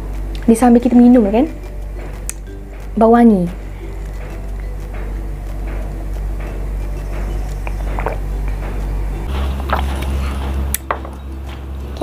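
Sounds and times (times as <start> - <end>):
low hum: 0.0 - 12.0
person drinking and swallowing: 7.6 - 8.6.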